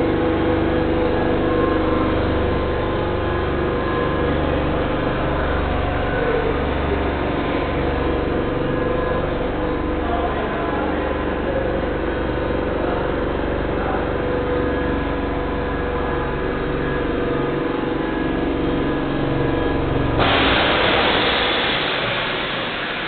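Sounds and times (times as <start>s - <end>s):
air compressor droning: 0.0s - 23.0s
loud steady hiss: 20.2s - 23.0s.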